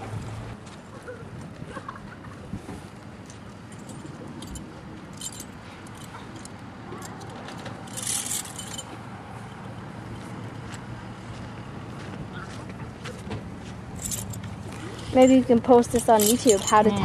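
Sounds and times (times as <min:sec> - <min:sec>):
metal tack jingling and clinking: 0:03.7 - 0:10.3, 0:13.9 - 0:17.0.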